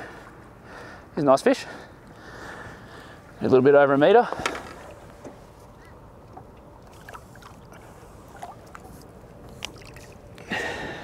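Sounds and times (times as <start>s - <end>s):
water lapping and small splashes: 1.6s - 11.0s
fish splashing out of water: 9.5s - 10.3s.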